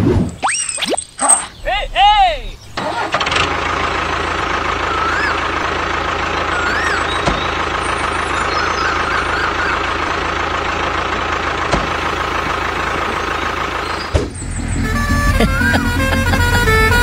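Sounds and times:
tractor engine running: 1.3 - 17.0
high whine: 14.4 - 17.0.

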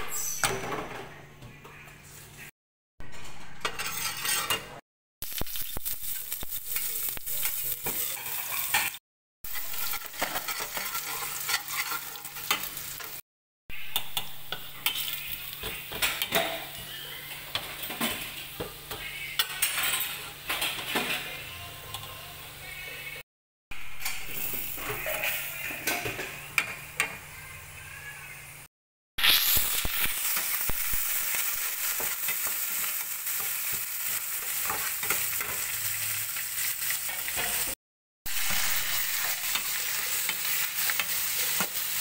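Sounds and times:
garlic sizzling in hot oil: 5.2 - 13.2, 29.2 - 42.0
spatula scraping a pan: 6.8 - 13.2.

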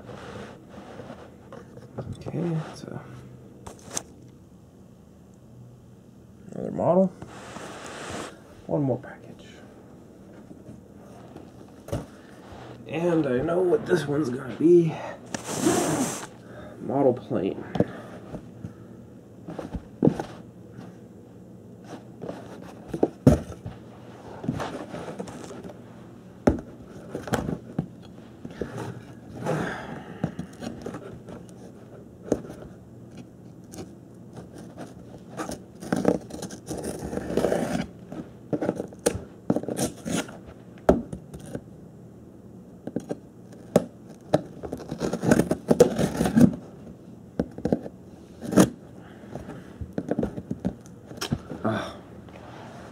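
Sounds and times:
cardboard tearing: 33.7 - 37.9, 38.6 - 40.4, 43.6 - 46.6.

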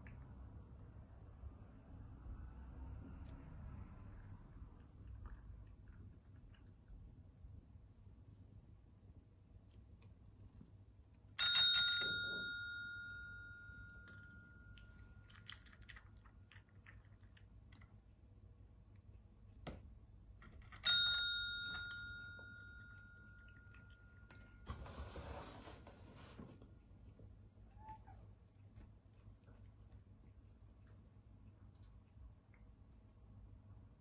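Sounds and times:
desk call bell ding: 11.4 - 15.2, 20.8 - 24.7.

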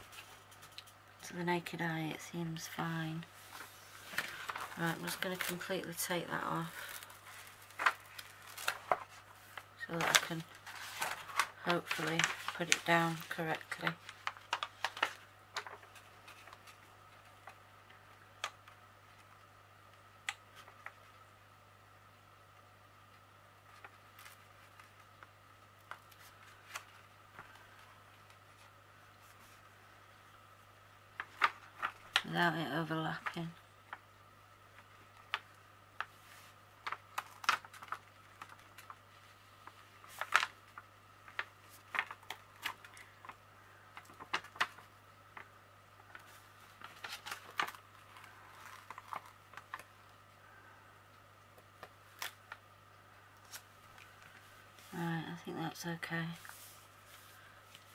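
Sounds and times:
faint low hum: 0.0 - 57.9
plastic sheet clicking and crackling: 4.1 - 21.2, 23.1 - 28.4, 31.1 - 34.0, 36.8 - 50.2, 51.6 - 52.7.

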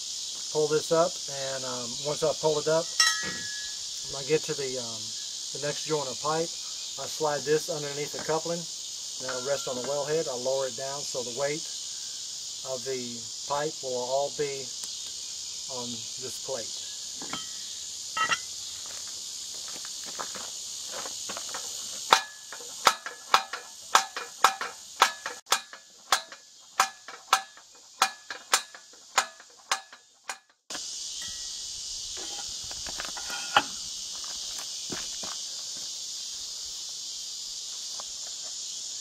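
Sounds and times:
crickets chirring: 0.0 - 39.0
ringing metallic clicks: 2.8 - 3.8, 9.3 - 9.9.

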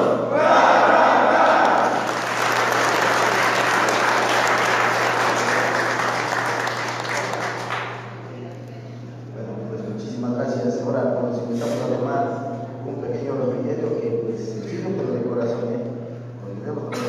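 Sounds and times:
crowd applauding: 1.0 - 8.3.

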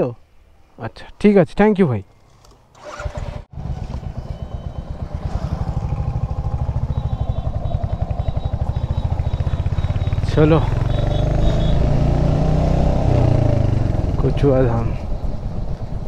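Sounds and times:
motorcycle engine thumping: 3.6 - 12.0.

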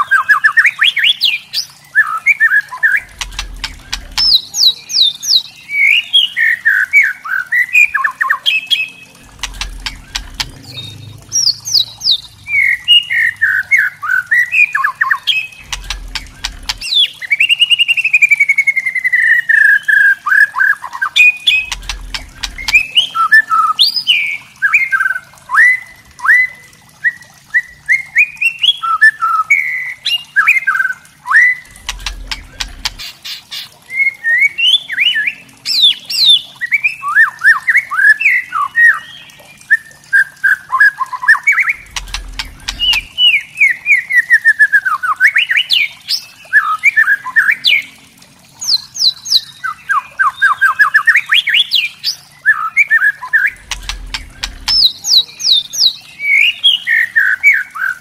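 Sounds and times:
dry crackling bird rattle: 41.8 - 43.2.

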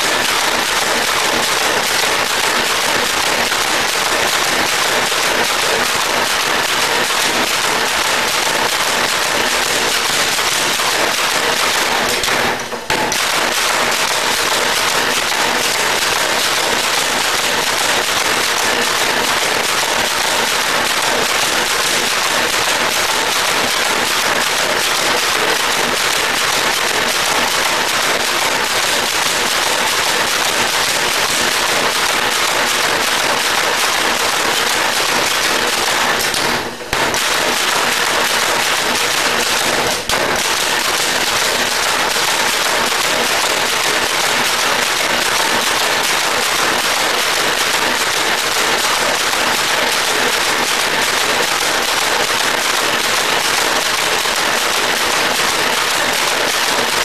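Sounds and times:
power hammer pounding steel: 0.0 - 57.0.

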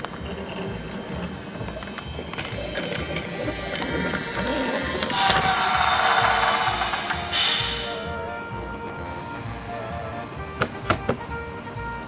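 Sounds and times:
wheels clicking over track joints: 0.0 - 7.5
toy train motor whirring: 0.0 - 8.1
background music: 0.0 - 12.0.

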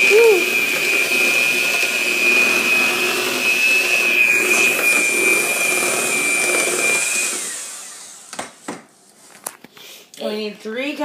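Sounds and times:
beaters churning batter in metal bowl: 0.0 - 8.3
electric hand mixer whining: 0.0 - 8.9.

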